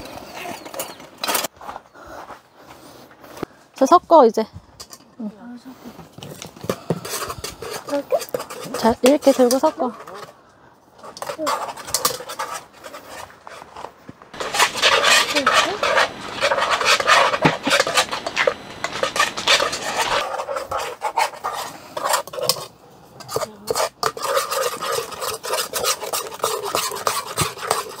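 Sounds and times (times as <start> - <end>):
spoon stirring batter in bowl: 6.6 - 10.4, 11.0 - 28.0.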